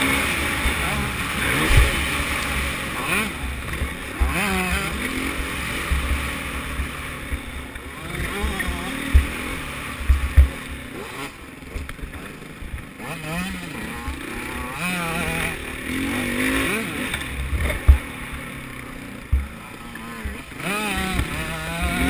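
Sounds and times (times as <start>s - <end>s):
motocross bike engine revving: 0.0s - 22.0s
sharp low thumps: 9.0s - 10.6s.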